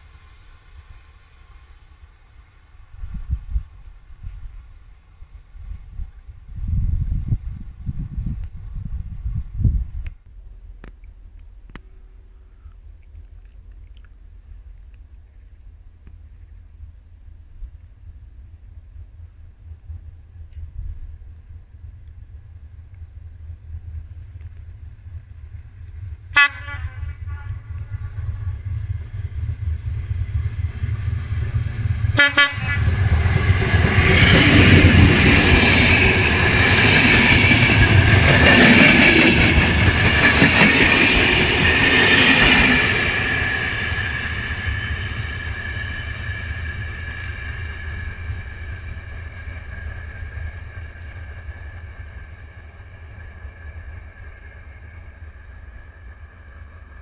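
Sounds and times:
wind rumble on microphone: 2.8s - 12.0s, 12.6s - 54.2s
train wheels rumbling and clattering: 16.8s - 57.0s
train horn blasts: 26.3s - 28.7s, 32.1s - 33.1s.

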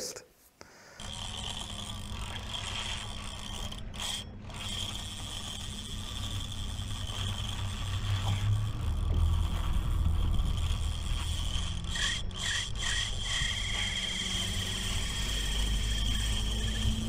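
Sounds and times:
fishing reel whirring: 1.0s - 17.0s
low rumble: 7.6s - 17.0s.

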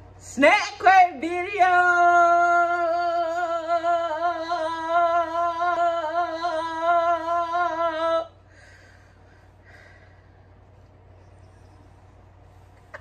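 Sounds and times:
woman singing long held note: 0.4s - 8.4s.

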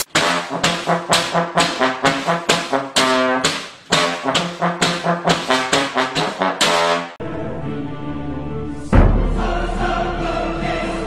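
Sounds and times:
brass instrument playing short notes: 0.0s - 7.2s.

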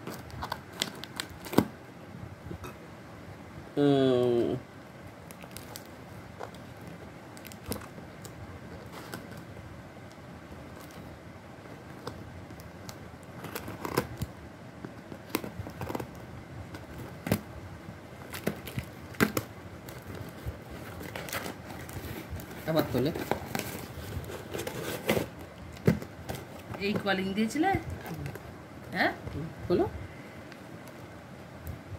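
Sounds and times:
packaging crinkling: 0.0s - 1.7s, 5.2s - 9.5s, 11.8s - 17.5s, 18.1s - 27.0s.

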